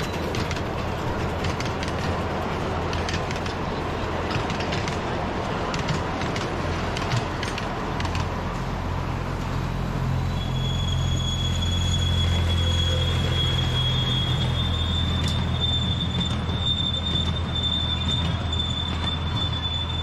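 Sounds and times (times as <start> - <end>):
train wheels clicking over rail joints: 0.0 - 8.7, 12.0 - 20.0
high wheel squeal: 10.0 - 20.0.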